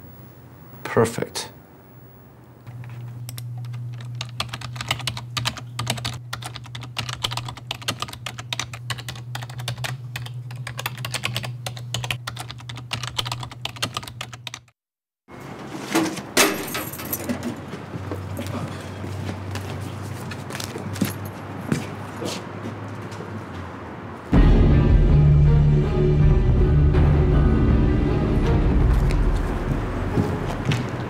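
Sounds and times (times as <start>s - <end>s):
rapid typing on keyboard: 3.7s - 14.7s
steady low hum: 24.3s - 31.0s.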